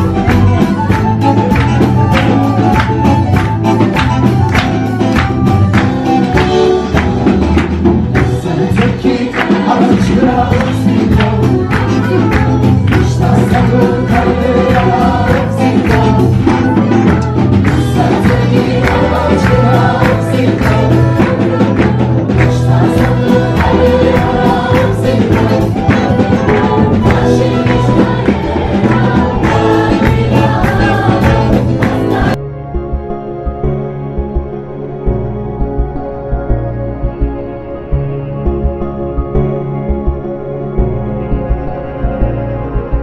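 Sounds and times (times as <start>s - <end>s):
acoustic guitar: 0.0s - 43.0s
drums: 0.0s - 43.0s
women singing: 8.2s - 32.4s.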